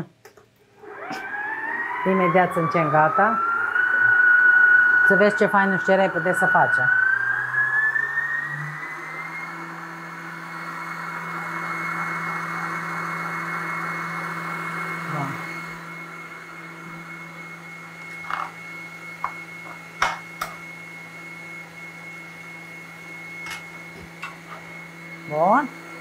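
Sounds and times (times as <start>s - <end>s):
electric mixer running: 0.7s - 26.0s.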